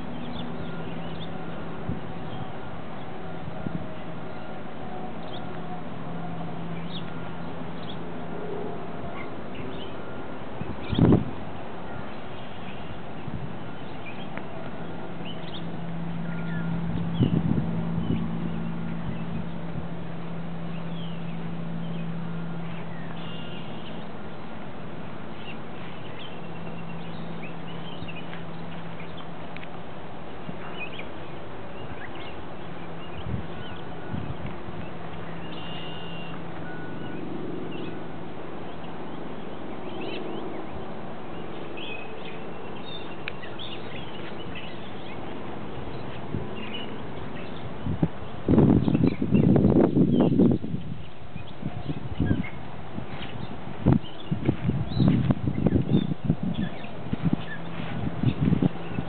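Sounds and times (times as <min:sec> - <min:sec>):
small birds chirping: 0:00.0 - 0:03.2, 0:06.7 - 0:08.0, 0:11.9 - 0:19.6, 0:38.6 - 0:59.0
steady low hum: 0:00.0 - 0:59.0.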